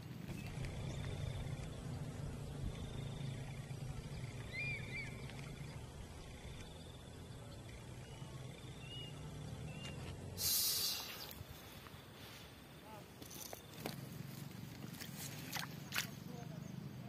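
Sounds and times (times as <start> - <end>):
bird chirps: 2.7 - 10.1
loud hiss: 10.4 - 11.3.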